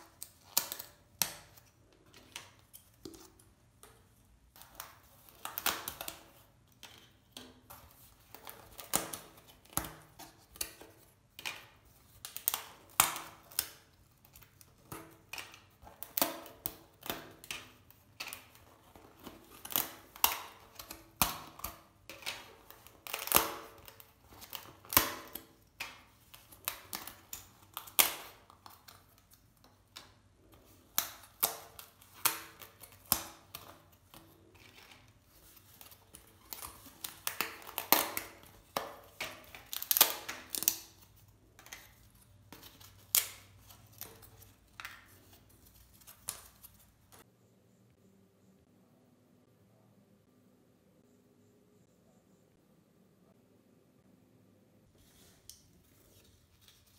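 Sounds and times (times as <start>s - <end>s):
foam puzzle pieces snapping out: 35.7s - 42.0s.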